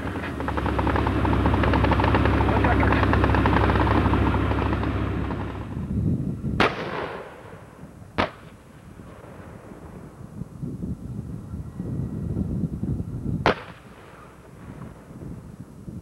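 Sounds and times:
tank engine and tracks rumbling: 0.0s - 7.9s
distant gunshots with echo: 6.6s - 8.6s.

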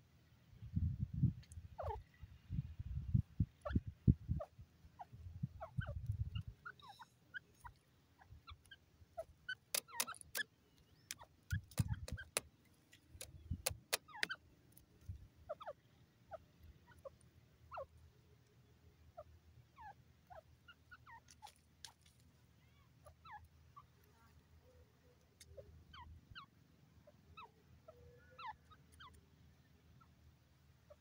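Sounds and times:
sharp clicks: 9.5s - 14.8s.

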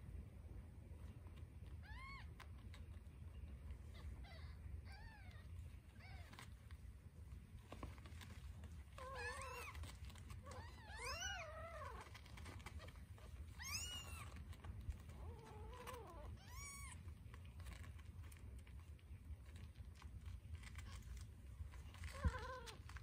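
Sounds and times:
newborn kittens mewing: 8.8s - 17.8s, 21.8s - 23.0s.

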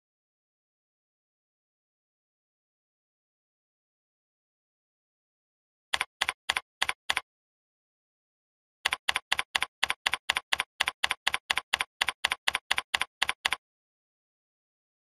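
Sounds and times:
keyboard keystrokes typing: 6.0s - 7.2s, 8.9s - 13.6s.

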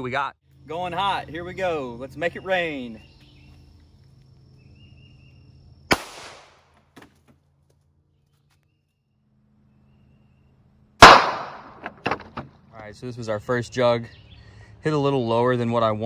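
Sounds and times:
revolver shots: 11.0s - 12.4s.

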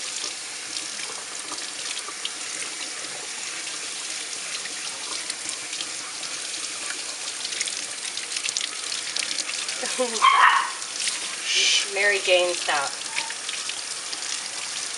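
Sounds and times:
faucet water running: 0.0s - 14.9s
water splashing and dripping: 0.0s - 14.9s.

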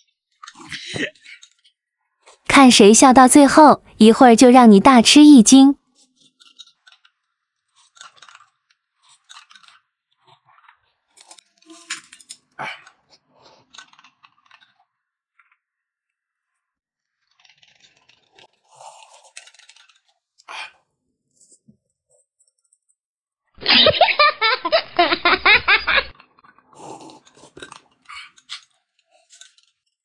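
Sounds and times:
chewing: 6.0s - 15.6s, 17.3s - 22.8s, 26.1s - 30.0s.

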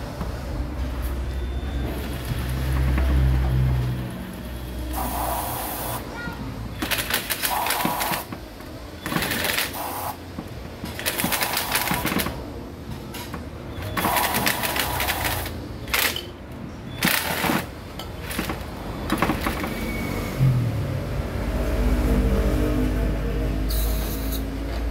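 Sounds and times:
aerosol spray hissing: 5.0s - 6.0s.

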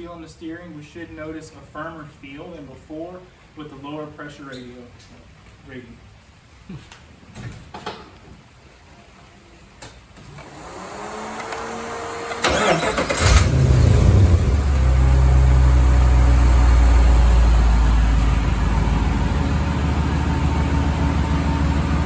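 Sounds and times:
engine starter cranking: 10.4s - 14.5s
engine idling: 12.0s - 22.0s.

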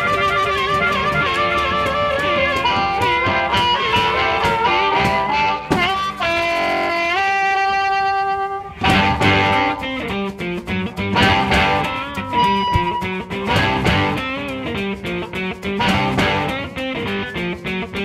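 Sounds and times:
rockabilly music with guitar: 0.0s - 18.0s.

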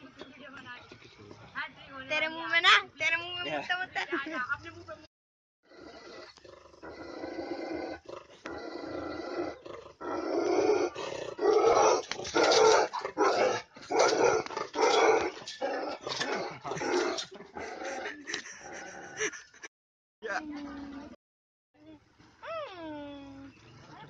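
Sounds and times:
dog growling: 5.6s - 19.4s
dog barking aggressively: 10.9s - 17.2s.

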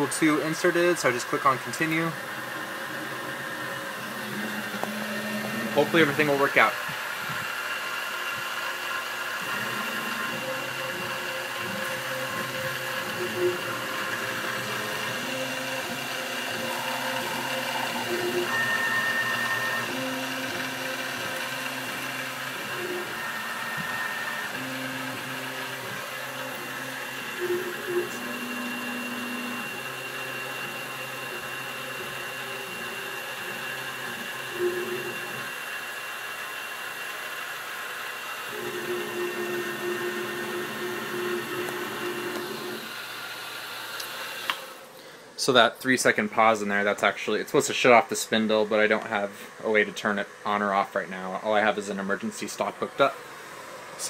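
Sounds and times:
spindle motor whine: 0.0s - 45.4s
drill bit cutting plastic: 0.7s - 35.6s, 38.5s - 43.2s
stepper motors moving: 1.0s - 7.6s, 8.9s - 35.6s.

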